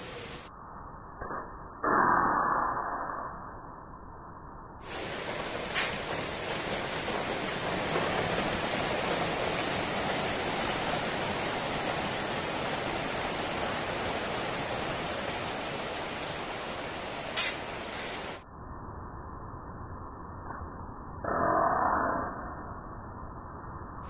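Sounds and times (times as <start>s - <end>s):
steady hiss: 0.0s - 0.5s, 4.8s - 18.4s.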